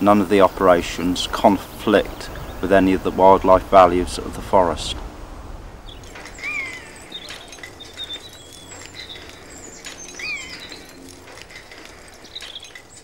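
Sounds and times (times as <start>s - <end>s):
small birds chirping: 0.0s - 13.0s
rising and falling bird call: 5.8s - 13.0s
faint clicks and rustles: 5.9s - 13.0s.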